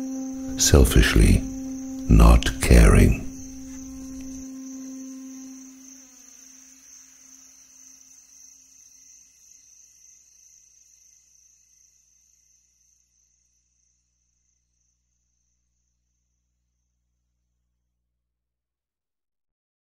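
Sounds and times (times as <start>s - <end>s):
low hum: 0.0s - 5.6s
crickets chirring: 0.0s - 17.3s.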